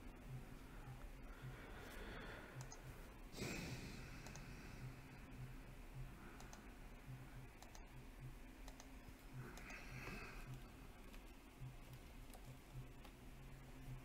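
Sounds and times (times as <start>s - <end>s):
mouse and keyboard clicks: 2.6s - 2.8s, 6.4s - 6.7s, 7.6s - 7.9s, 8.6s - 13.2s.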